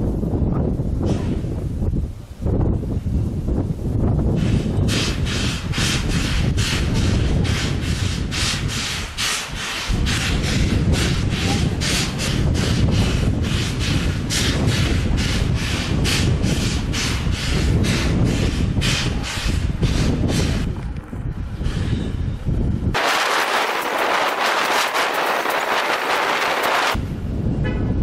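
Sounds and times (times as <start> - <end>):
steam air pump hissing: 4.4 - 20.7, 23.0 - 27.0.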